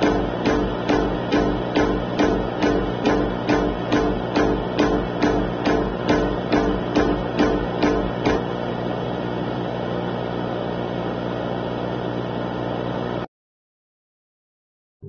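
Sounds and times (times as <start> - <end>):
music beat: 0.0 - 8.5
low droning hum: 0.0 - 11.2.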